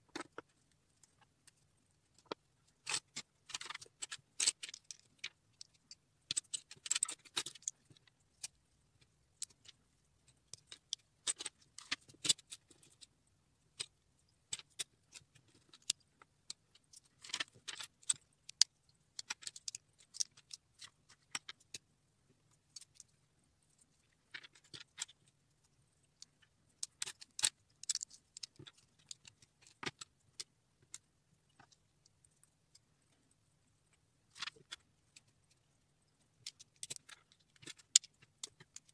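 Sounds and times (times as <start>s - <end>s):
plastic bricks clicking: 26.2s - 31.0s, 36.4s - 38.9s.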